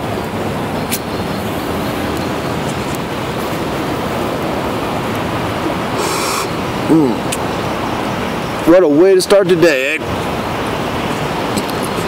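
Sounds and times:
steady rushing outdoor noise: 0.0 - 12.0
short breathy hiss: 6.0 - 6.6.

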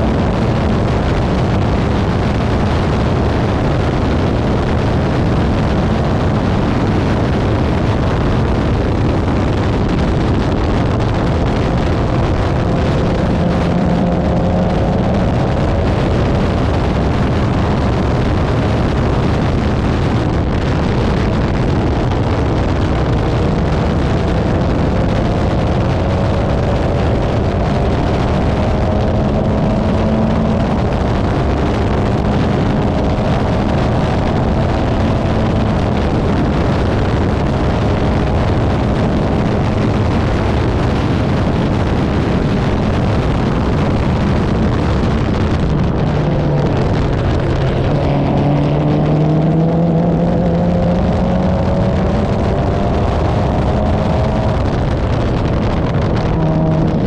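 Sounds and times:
race car engine accelerating: 0.0 - 57.0
wind buffeting microphone: 0.0 - 57.0.

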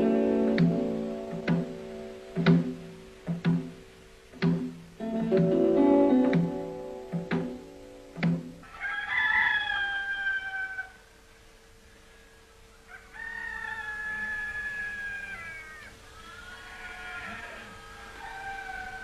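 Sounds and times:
plucked string music: 0.0 - 8.6
faint steady hum: 0.0 - 19.0
rooster crowing: 8.6 - 11.1, 12.7 - 19.0.

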